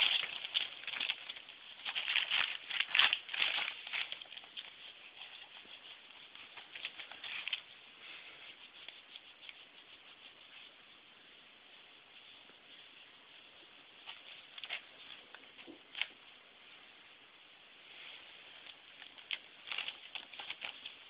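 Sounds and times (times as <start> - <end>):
towel rubbing dog's coat: 2.6 - 11.1.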